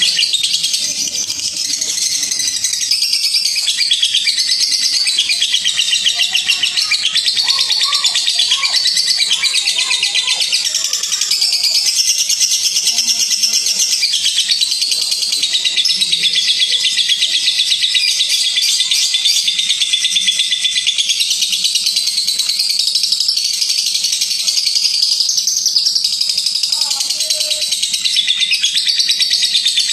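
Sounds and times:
lovebird chattering trill: 0.0s - 29.9s.

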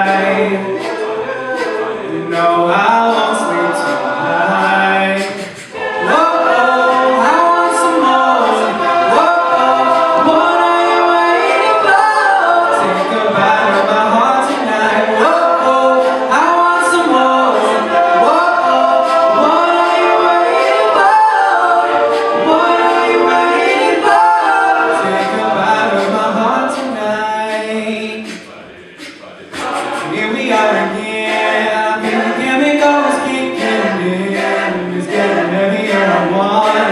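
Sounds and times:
man singing lead into microphone: 0.0s - 20.0s
male backing vocal harmonies: 0.0s - 36.9s.

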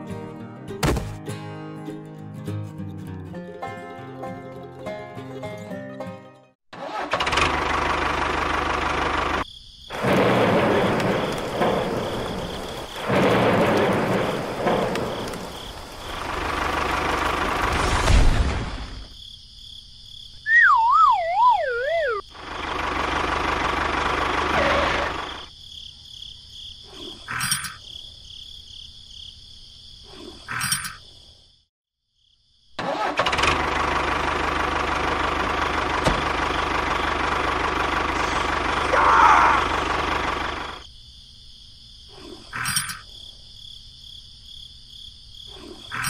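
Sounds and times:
sharp thump: 0.8s - 1.2s
toy tractor engine revving: 6.8s - 11.1s, 21.9s - 25.5s, 32.8s - 40.8s
comic falling whistle: 20.4s - 22.3s
hiss: 38.1s - 38.6s.

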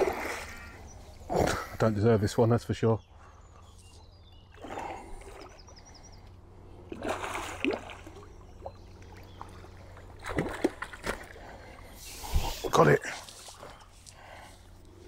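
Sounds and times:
fish splashing at the surface: 6.9s - 8.3s.

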